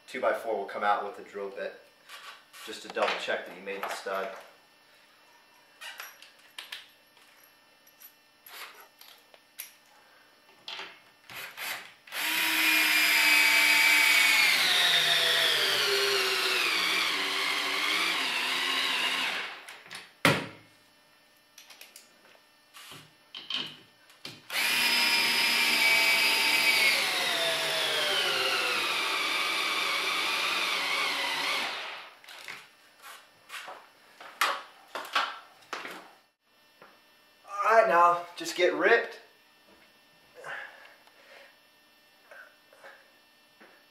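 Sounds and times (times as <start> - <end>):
cordless drill boring into wood: 11.3 - 19.8, 24.5 - 32.2.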